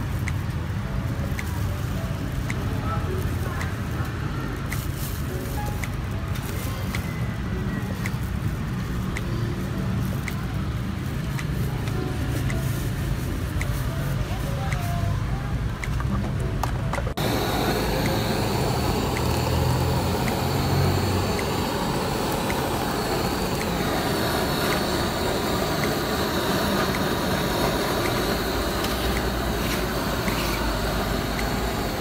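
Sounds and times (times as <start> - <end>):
butane torch hissing: 17.2 - 32.0.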